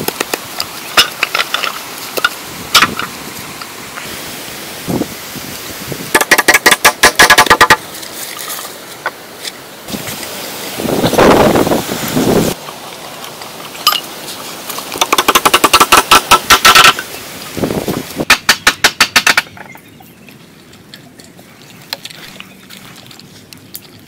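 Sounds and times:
wooden sticks clattering: 0.0 - 3.7, 6.1 - 9.6, 12.6 - 17.1.

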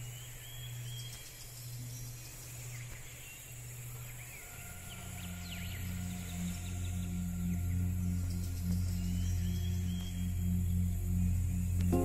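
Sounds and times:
ambient soundtrack music: 3.5 - 12.0.

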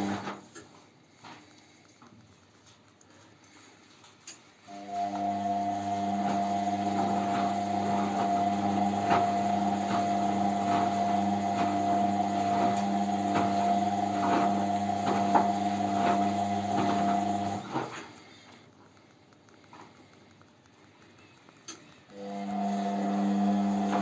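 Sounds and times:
washing machine humming: 0.0 - 0.6, 4.6 - 18.8, 21.3 - 24.0.

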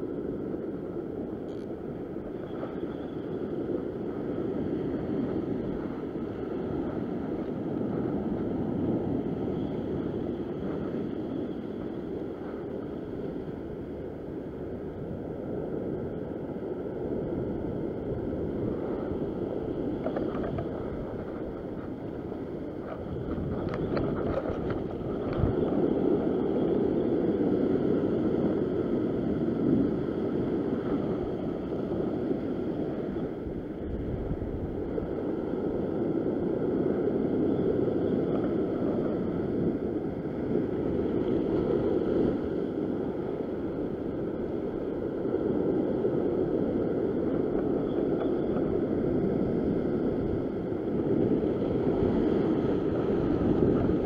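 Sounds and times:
wind on microphone: 0.0 - 54.0
ocean swell washing over rocks: 2.4 - 54.0.

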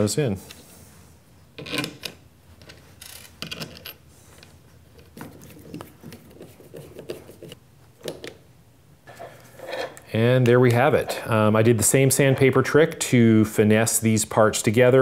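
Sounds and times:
screws and plastic parts clicking: 1.6 - 5.1.

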